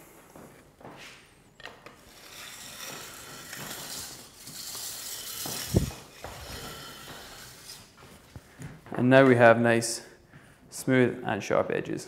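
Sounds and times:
stone scraping steel edge: 0:01.6 - 0:07.9.

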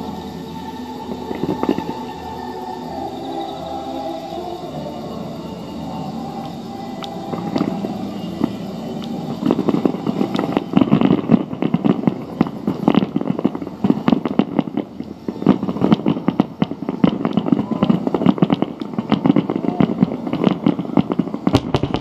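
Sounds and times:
fireworks bursting rapidly: 0:07.0 - 0:22.0.

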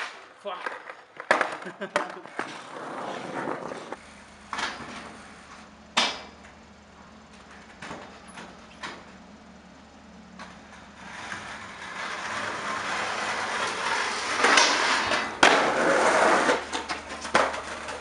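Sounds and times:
skateboard landing slap: 0:00.0 - 0:02.5, 0:14.3 - 0:18.0
wheels rolling on concrete: 0:00.0 - 0:18.0
skateboard grinding metal rail: 0:02.2 - 0:05.4, 0:10.4 - 0:18.0.

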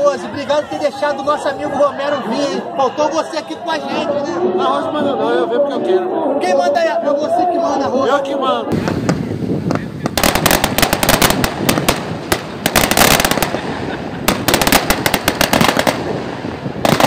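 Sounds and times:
rapid crackling pops: 0:08.8 - 0:17.0.

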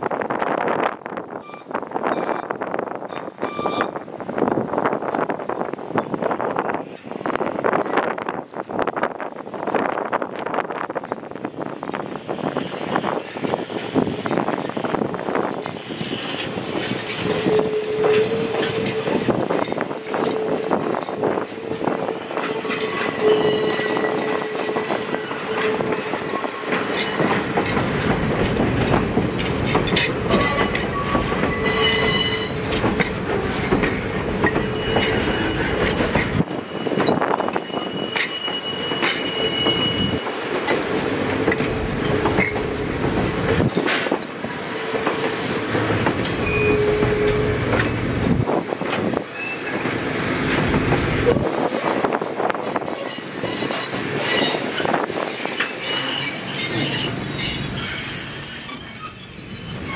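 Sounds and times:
train wheels clicking and rumbling: 0:00.0 - 0:59.9
wheel squeal: 0:17.0 - 0:21.7, 0:22.3 - 0:27.4, 0:29.8 - 0:32.7, 0:34.4 - 0:40.3, 0:46.2 - 0:47.8, 0:52.8 - 0:59.9.

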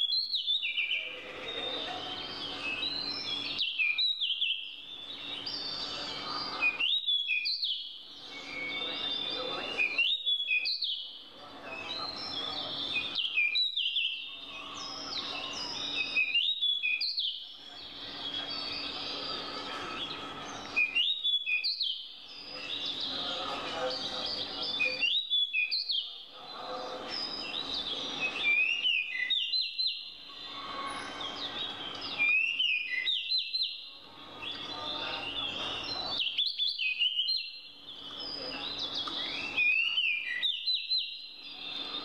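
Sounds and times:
songbird whistling phrase: 0:00.0 - 0:11.1, 0:11.8 - 0:23.4, 0:24.2 - 0:26.2, 0:27.1 - 0:33.8, 0:34.4 - 0:42.0
forest birds chorus: 0:00.0 - 0:42.0.

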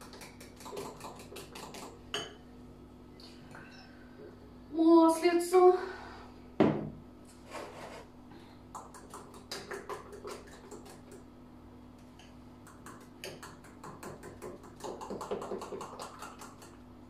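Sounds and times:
utensil clicking against bowl: 0:00.0 - 0:02.0, 0:12.2 - 0:16.8.

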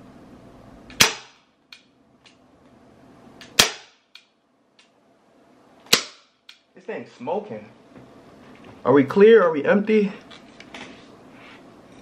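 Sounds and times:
airsoft revolver shots: 0:00.9 - 0:01.5, 0:03.4 - 0:04.2, 0:05.9 - 0:06.4.

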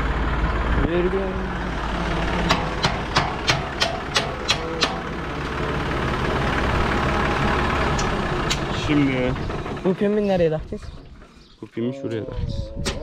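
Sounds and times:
engine idling: 0:00.0 - 0:11.9
sharp knocks: 0:02.4 - 0:05.2.

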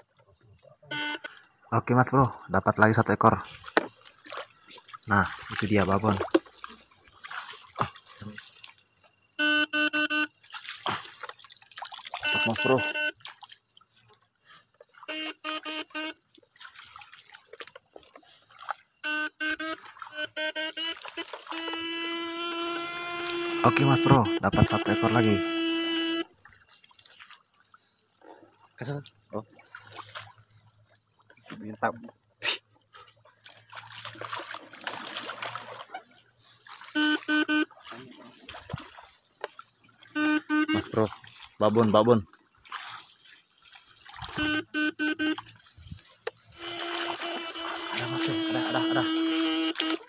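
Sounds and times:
electronic buzz bursts: 0:00.9 - 0:01.5, 0:09.4 - 0:10.4, 0:12.2 - 0:13.2, 0:15.1 - 0:16.2, 0:19.0 - 0:26.4, 0:37.0 - 0:37.8, 0:40.1 - 0:40.9, 0:44.4 - 0:45.4, 0:46.5 - 0:50.0.

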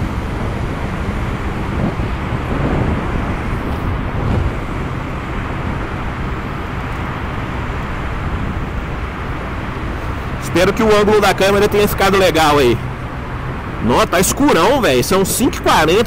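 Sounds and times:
wind noise: 0:00.0 - 0:11.1
surrounding traffic: 0:00.0 - 0:16.0.

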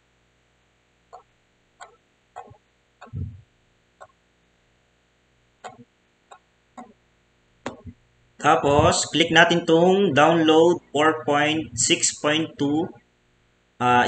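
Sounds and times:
computer mouse clicking: 0:01.8 - 0:03.2, 0:05.6 - 0:07.0.

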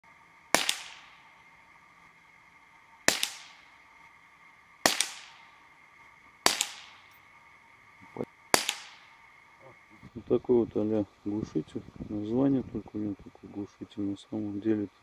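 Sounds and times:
suppressed rifle shots: 0:00.5 - 0:01.5, 0:03.0 - 0:03.8, 0:04.8 - 0:05.6, 0:06.4 - 0:07.2, 0:08.5 - 0:09.2.

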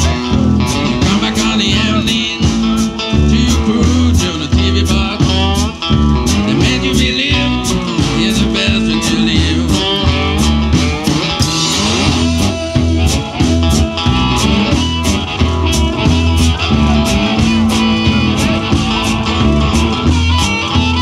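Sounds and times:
man singing into a microphone: 0:00.0 - 0:10.6
blues band playing: 0:00.0 - 0:21.0.

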